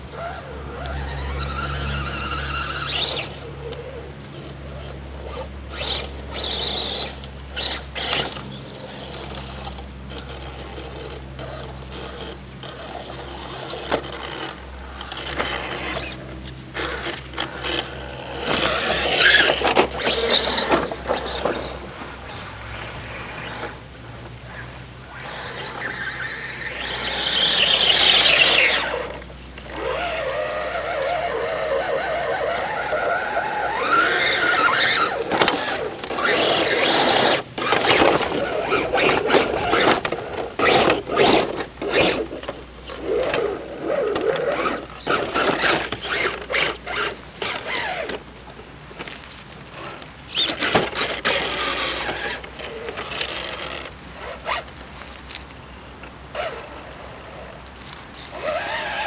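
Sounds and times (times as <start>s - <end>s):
electric motor whining: 0.0s - 48.3s, 49.0s - 54.7s, 56.3s - 59.0s
tyres knocking and scraping on rock: 32.3s - 48.2s.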